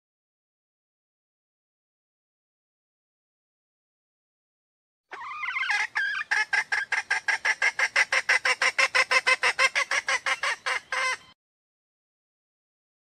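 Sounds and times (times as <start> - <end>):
hen calling: 5.1 - 11.4.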